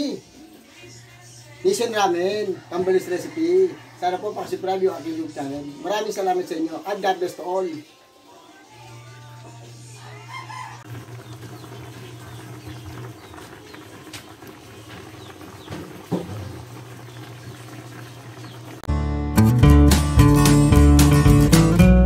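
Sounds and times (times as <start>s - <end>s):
hens clucking: 10.0s - 18.9s.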